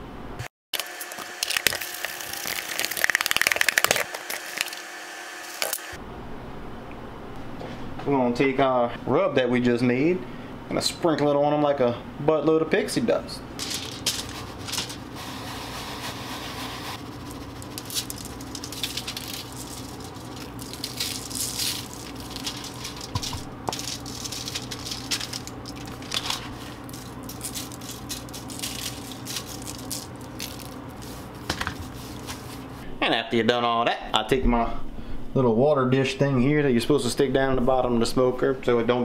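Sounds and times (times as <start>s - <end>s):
aluminium foil crinkling: 0.8s - 4.8s, 13.6s - 15.1s, 17.0s - 32.7s
seasoning patter: 0.9s - 4.9s, 13.6s - 32.8s
steady low hum: 4.0s - 33.0s.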